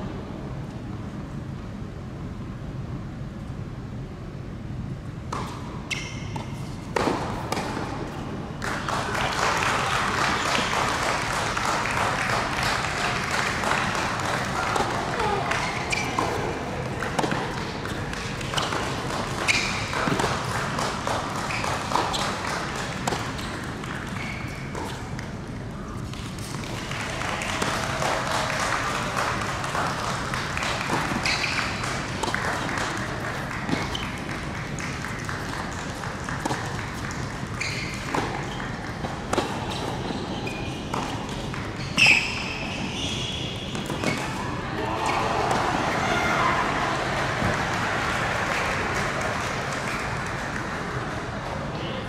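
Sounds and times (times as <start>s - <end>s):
tennis ball hit by rackets: 5.3s - 8.1s, 13.4s - 25.3s, 30.4s - 37.1s, 37.8s - 40.1s, 40.8s - 42.5s, 43.7s - 44.4s
tennis ball bouncing: 5.3s - 8.3s, 12.7s - 27.7s, 28.7s - 42.6s, 43.7s - 44.4s.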